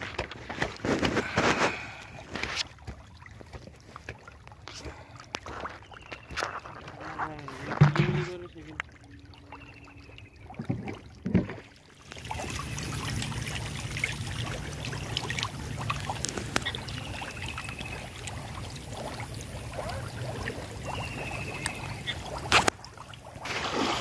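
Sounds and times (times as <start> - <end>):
fish thrashing and splashing in water: 0.0 - 24.0.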